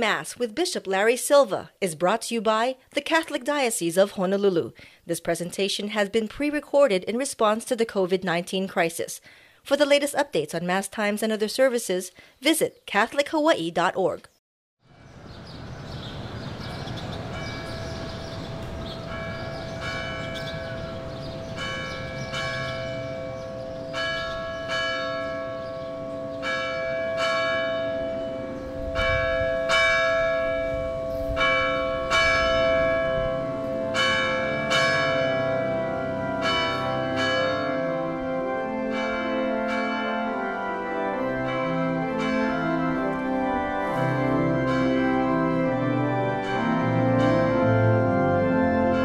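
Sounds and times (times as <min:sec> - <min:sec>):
church bells ringing: 0:14.9 - 0:49.0.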